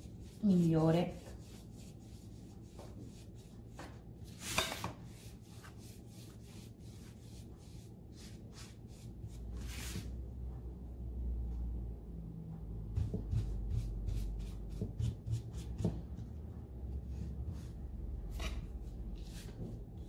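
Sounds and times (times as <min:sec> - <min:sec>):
wax brush rubbing on wood: 0:00.0 - 0:03.6
brush swishes: 0:00.0 - 0:10.2.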